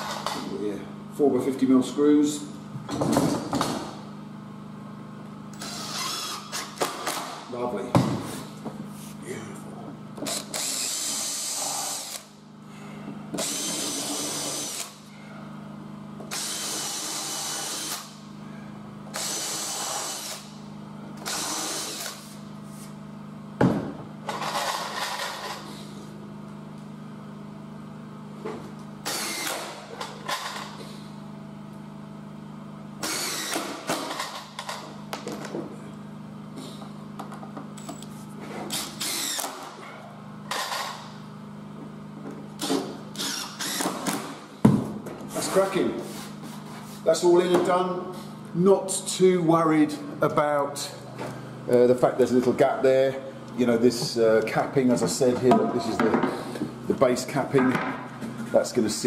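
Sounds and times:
steady low hum: 0:00.0 - 0:59.0
power drill driving screws: 0:05.5 - 0:07.3, 0:10.2 - 0:12.3, 0:13.4 - 0:15.0, 0:16.3 - 0:18.1, 0:19.1 - 0:20.5, 0:21.2 - 0:22.3, 0:29.0 - 0:30.7, 0:33.0 - 0:34.8, 0:38.7 - 0:39.6, 0:40.5 - 0:41.0, 0:42.6 - 0:44.2.

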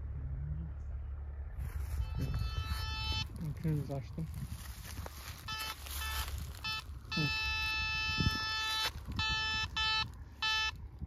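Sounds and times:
metal detector beeps: 0:01.9 - 0:03.4, 0:05.4 - 0:10.8.

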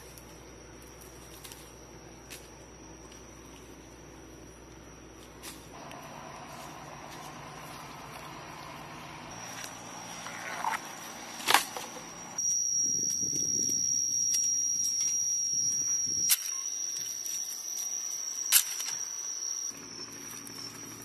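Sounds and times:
high-pitched insect drone: 0:11.8 - 0:21.0.

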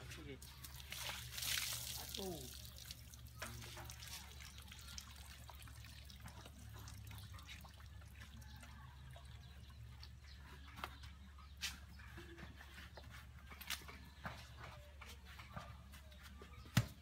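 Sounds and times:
water dripping onto mud: 0:00.4 - 0:08.8.

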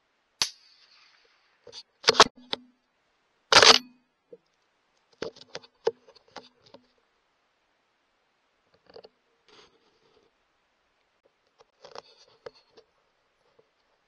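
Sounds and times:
soft rustle: 0:00.6 - 0:02.0, 0:08.6 - 0:14.0.

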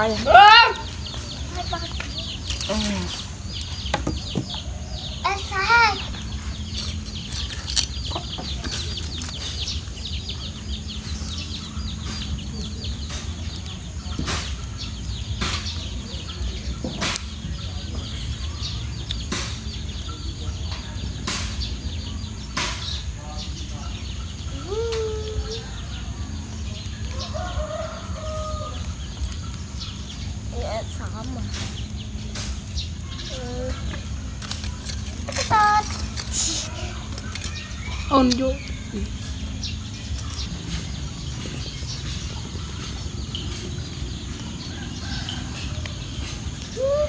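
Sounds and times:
wind rumbling on microphone: 0:24.4 - 0:47.0
rooster crowing: 0:27.1 - 0:28.9.

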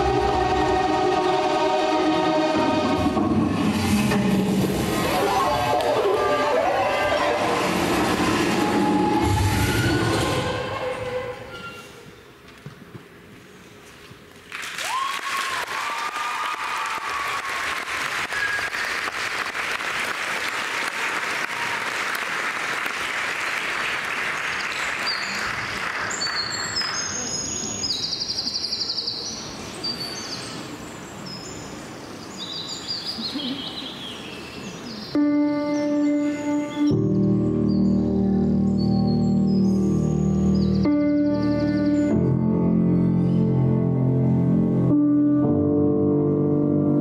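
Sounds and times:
applause: 0:14.4 - 0:27.4
high chirping calls: 0:26.1 - 0:36.0.

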